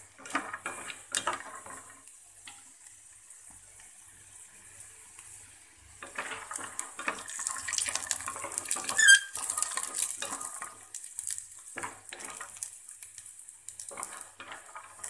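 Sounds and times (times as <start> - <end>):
peanuts sizzling in oil: 0.0 - 15.0
sharp squeak: 8.9 - 9.4.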